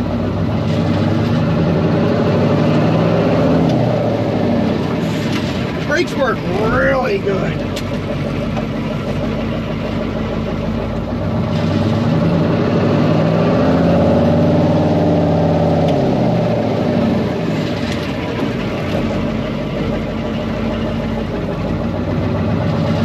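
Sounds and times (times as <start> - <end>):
diesel truck engine revving: 0.0 - 23.0.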